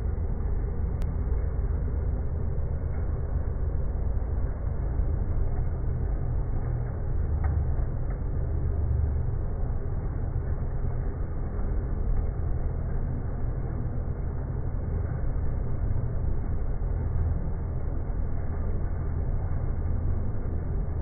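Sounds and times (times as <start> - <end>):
faint ticks: 6.6 - 8.5.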